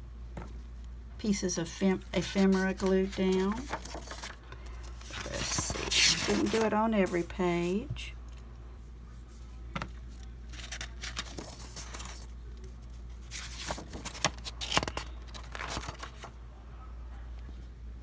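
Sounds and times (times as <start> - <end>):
paper pages rustling: 2.2 - 7.8, 10.1 - 16.4.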